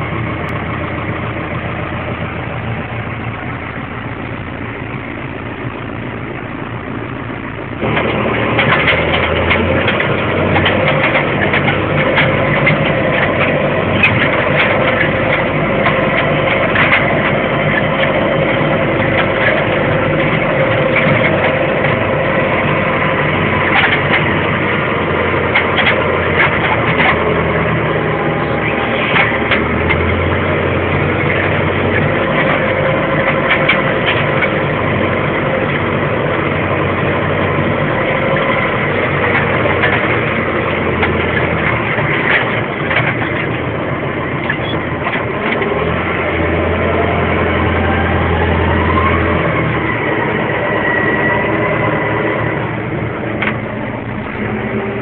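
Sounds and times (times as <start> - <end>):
tractor diesel engine running: 0.0 - 55.0
rattling and clicking: 7.8 - 27.7, 28.4 - 36.1, 36.7 - 45.7, 53.3 - 55.0.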